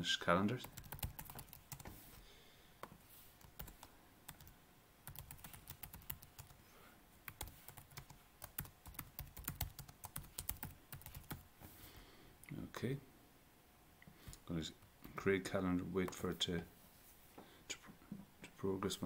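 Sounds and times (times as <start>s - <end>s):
keyboard typing: 0.6s - 1.9s, 3.4s - 6.6s, 7.3s - 11.4s.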